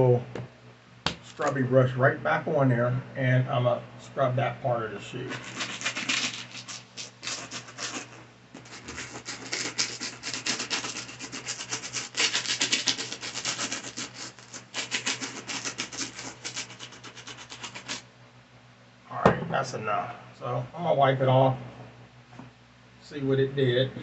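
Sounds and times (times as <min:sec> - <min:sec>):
brush scrubbing a shoe: 0:05.2 - 0:18.0.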